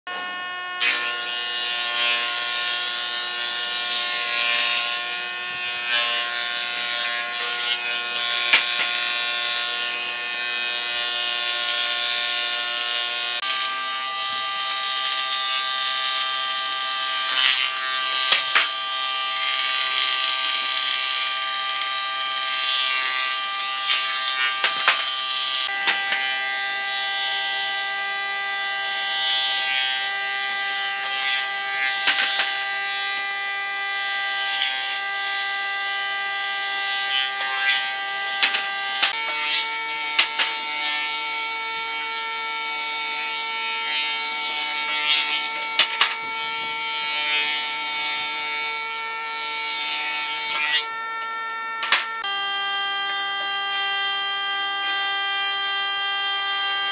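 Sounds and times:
power tool motor whining: 0.1s - 56.9s
hiss of cutting wood: 13.4s - 41.4s.

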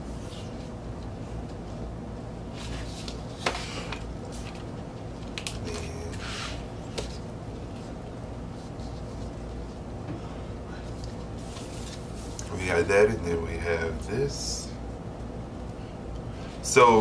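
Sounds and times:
paper sleeves rustling and sliding: 11.0s - 12.4s.

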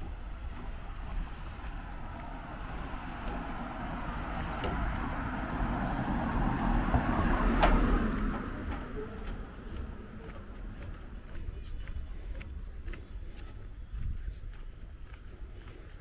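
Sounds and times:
vehicle passing: 0.0s - 11.5s.

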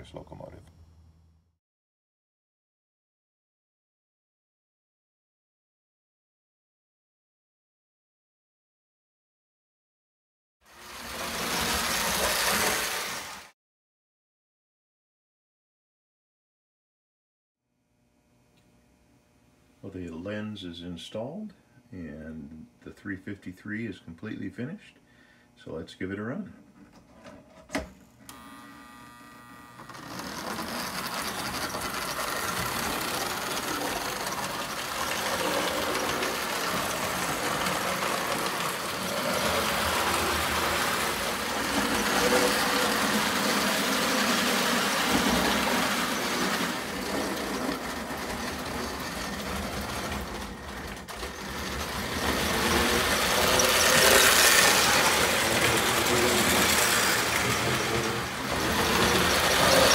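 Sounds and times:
toy train wheels on rails: 10.7s - 13.4s, 29.8s - 59.9s
toy train motor whirring: 28.3s - 59.9s.

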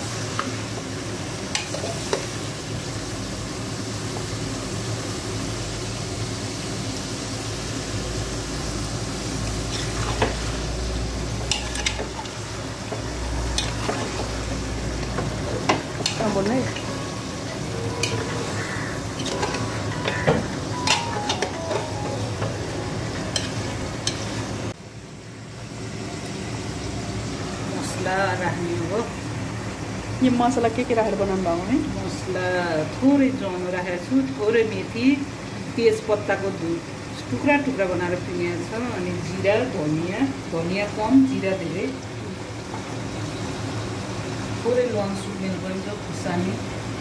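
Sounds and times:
meat sizzling in a pot: 0.0s - 47.0s
ladle clinking and scraping pot: 19.2s - 21.5s.

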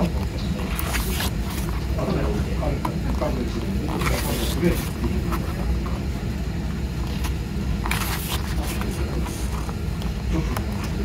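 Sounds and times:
page turning swish: 0.6s - 1.8s, 3.9s - 5.5s, 7.1s - 9.7s.

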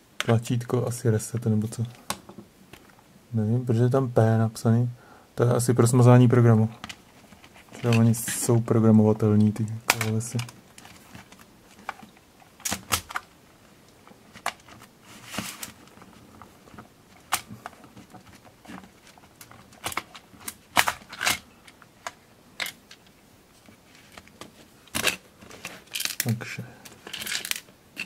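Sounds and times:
plastic parts clicking and knocking: 9.4s - 13.3s, 14.0s - 28.0s.

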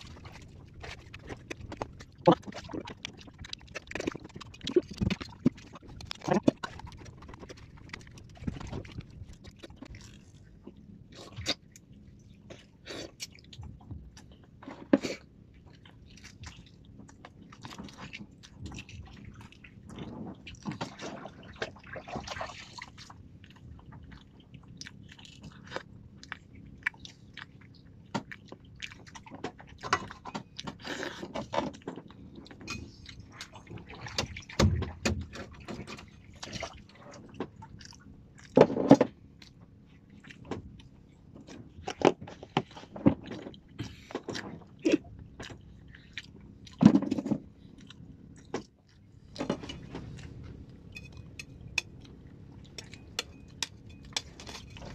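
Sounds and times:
person chewing: 0.1s - 10.5s, 23.4s - 29.2s, 41.8s - 46.8s, 47.6s - 54.9s.

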